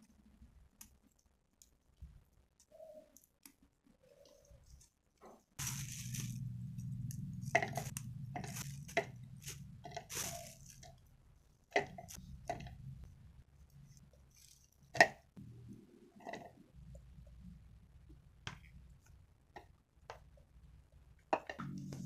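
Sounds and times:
plastic bag rustling: 5.6s - 11.1s
low steady hum: 5.6s - 22.0s.

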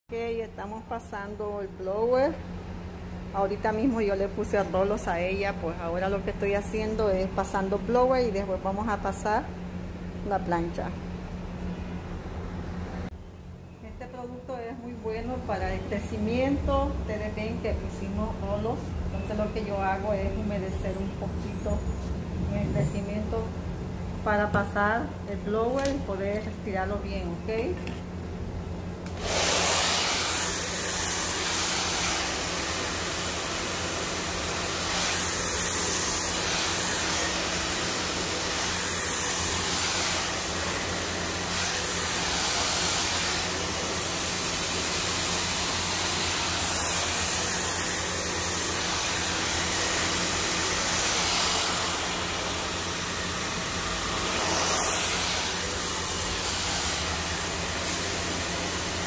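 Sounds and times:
hair dryer running: 29.0s - 59.0s.

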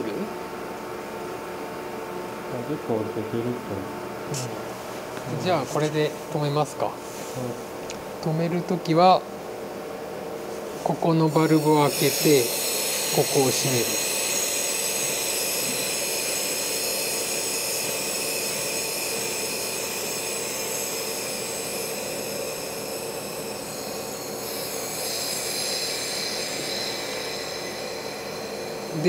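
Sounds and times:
gas hissing from vent valve: 10.3s - 29.0s
faint high whistling tones: 10.8s - 29.0s.

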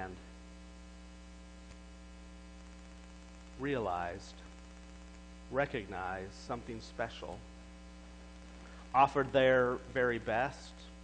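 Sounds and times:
man speaking: 0.0s - 0.3s, 3.6s - 4.5s, 5.5s - 7.5s, 8.9s - 11.0s
electrical mains hum: 0.0s - 11.0s.

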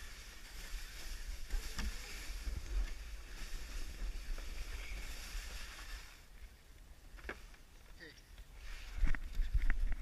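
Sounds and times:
sled scraping over snow: 0.0s - 6.4s.

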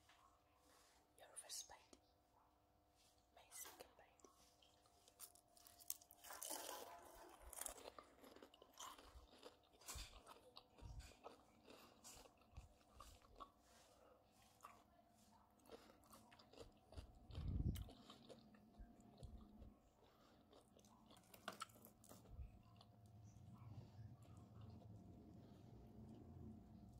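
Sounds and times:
crunching onion rings: 4.6s - 13.9s, 15.6s - 22.9s.

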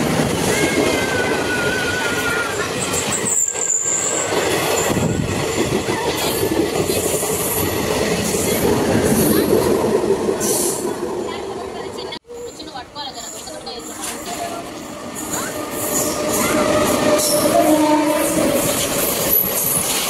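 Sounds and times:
train wheels rumbling on rails: 0.0s - 20.0s
high wheel squeals: 0.5s - 5.8s.

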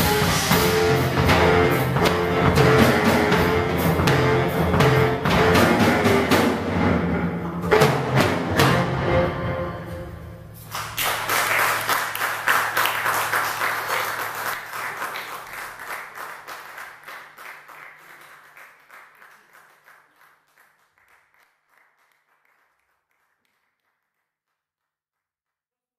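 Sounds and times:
audience applauding: 10.7s - 24.2s.

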